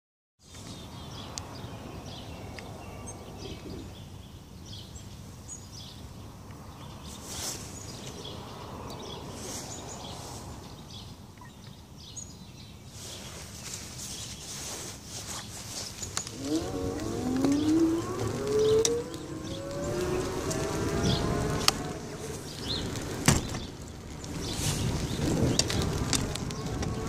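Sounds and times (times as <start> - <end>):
birds chirping: 0.4 - 27.0
broad hiss: 7.0 - 8.4
low outdoor rumble: 15.7 - 27.0.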